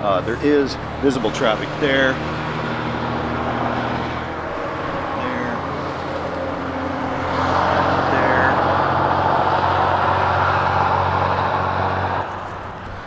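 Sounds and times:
low engine hum: 0:00.0 - 0:13.0
vehicle tyre noise: 0:00.0 - 0:13.0.

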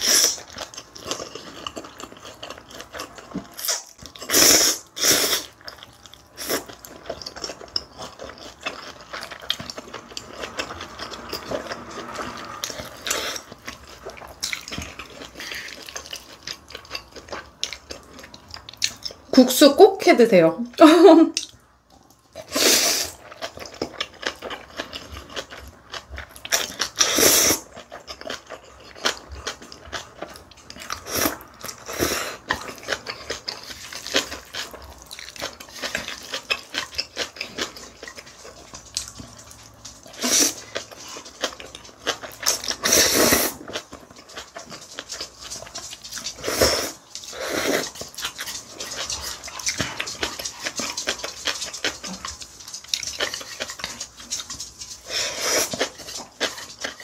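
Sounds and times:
wet chewing and mouth smacking: 0:00.0 - 0:19.4, 0:21.3 - 0:57.0
noodle slurping: 0:40.1 - 0:40.8, 0:42.4 - 0:43.9, 0:46.1 - 0:52.2.

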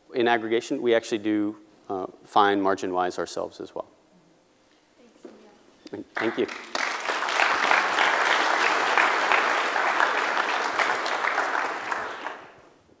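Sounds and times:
audience applauding: 0:06.1 - 0:12.7.

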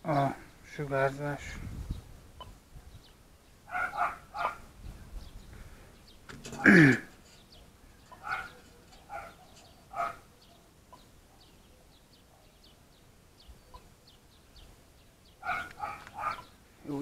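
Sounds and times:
small birds chirping: 0:00.0 - 0:17.0
dog barking: 0:03.7 - 0:04.6, 0:08.2 - 0:10.6, 0:11.3 - 0:12.6, 0:15.4 - 0:16.5.

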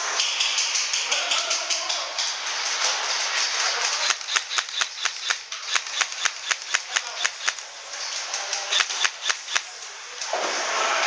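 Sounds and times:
airsoft rifle shots clicking: 0:03.9 - 0:07.7, 0:08.5 - 0:09.7.

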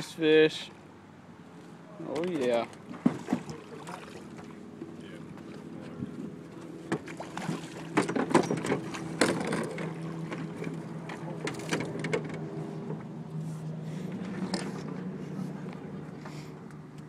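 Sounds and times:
fish splashing at water surface: 0:07.0 - 0:10.7.

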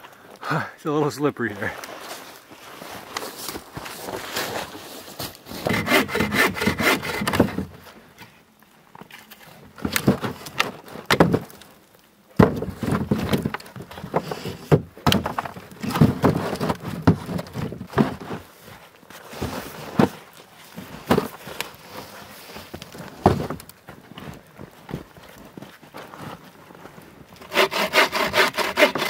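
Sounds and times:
logs scraping and knocking: 0:01.0 - 0:29.0.

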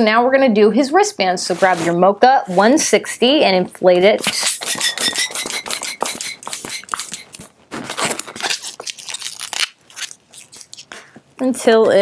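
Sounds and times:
balloon squeaking and crackling: 0:04.3 - 0:11.0
thin steady squeal: 0:04.7 - 0:07.4.

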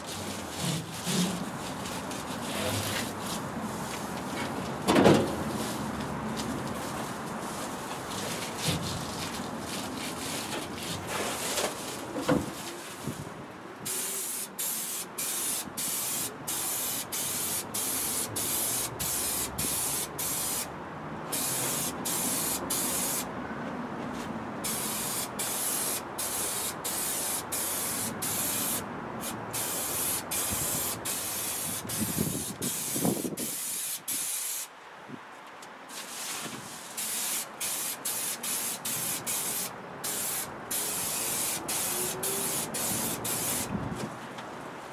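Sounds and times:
foil insulation sheet rustling: 0:05.5 - 0:13.2
aerosol spray hissing: 0:13.9 - 0:20.7, 0:24.7 - 0:34.7, 0:37.0 - 0:43.7.

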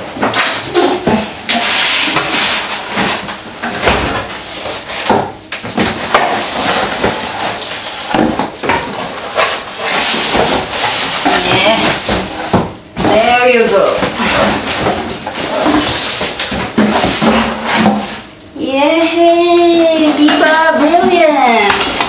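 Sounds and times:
packaging rustling and scraping: 0:00.0 - 0:18.4, 0:19.2 - 0:22.0.

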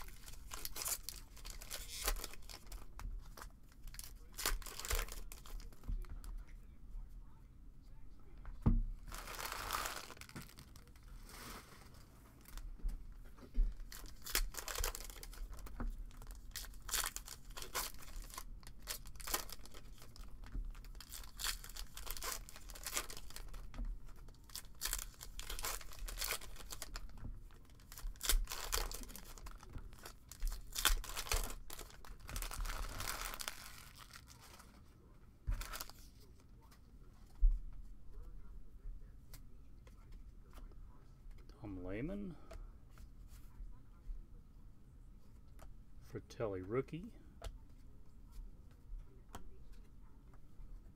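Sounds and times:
card wrappers tearing and crinkling: 0:00.0 - 0:05.8, 0:09.0 - 0:11.7, 0:13.8 - 0:34.8, 0:35.5 - 0:36.1
cards being handled: 0:00.0 - 0:06.3, 0:09.1 - 0:12.6, 0:13.8 - 0:38.2.

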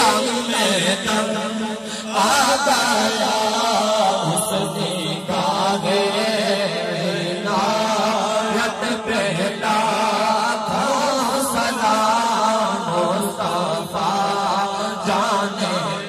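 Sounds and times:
men chanting together: 0:00.0 - 0:16.0.

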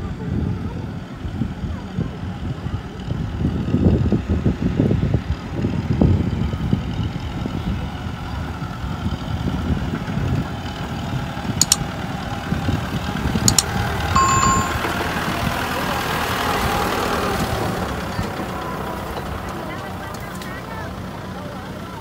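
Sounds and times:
tractor diesel engine: 0:00.2 - 0:22.0
sharp clicks: 0:11.6 - 0:11.8, 0:13.5 - 0:13.7
brief high beep: 0:14.2 - 0:15.0.

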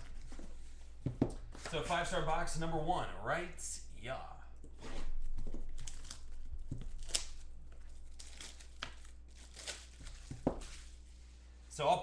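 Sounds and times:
plastic wrap tearing and crinkling: 0:05.1 - 0:11.1
plastic wrap snapping: 0:05.4 - 0:10.9.

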